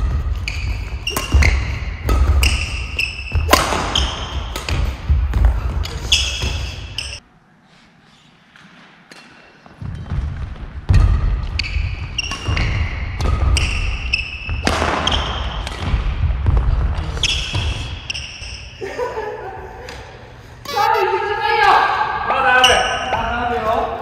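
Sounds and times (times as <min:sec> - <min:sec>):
sneakers squealing on wooden floor: 0:00.0 - 0:07.2, 0:10.9 - 0:15.7, 0:17.0 - 0:18.7
racket hitting shuttlecock: 0:00.1 - 0:07.1.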